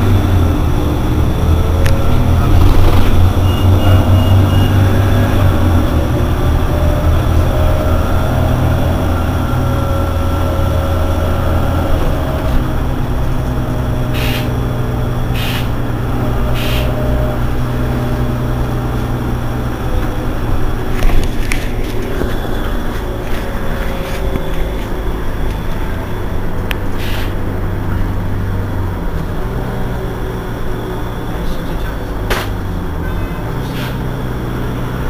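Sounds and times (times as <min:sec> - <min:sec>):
bus engine idling: 0:00.0 - 0:35.0
short air hisses: 0:14.2 - 0:14.5, 0:15.4 - 0:15.7, 0:27.0 - 0:27.4.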